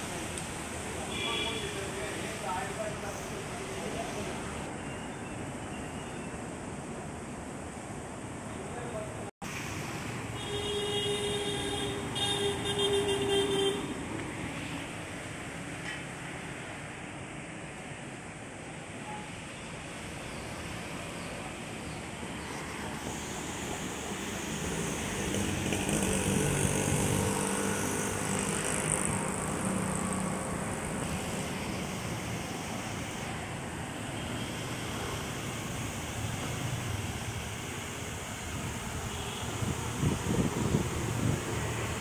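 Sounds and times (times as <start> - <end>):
city road traffic: 0.0 - 42.0
vehicle passing close: 22.5 - 32.8.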